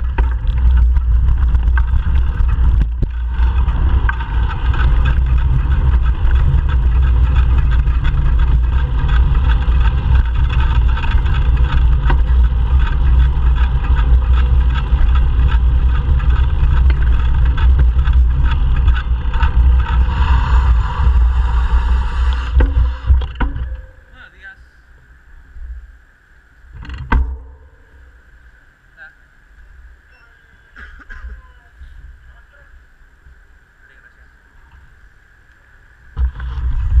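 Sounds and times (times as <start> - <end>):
tyre noise on concrete: 0.0 - 24.2
wind buffeting microphone: 0.0 - 24.2, 36.1 - 37.0
bicycle rattles: 0.0 - 29.1, 29.7 - 37.0.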